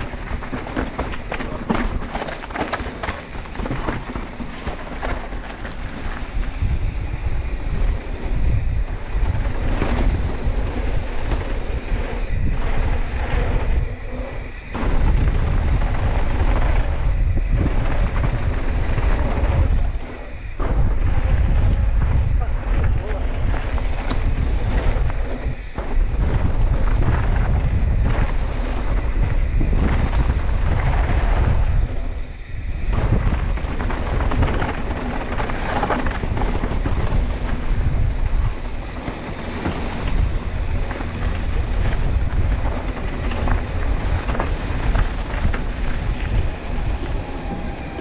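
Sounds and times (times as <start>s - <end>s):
bike tyres rumbling on gravel: 0.0s - 48.0s
wind buffeting microphone: 0.0s - 48.0s.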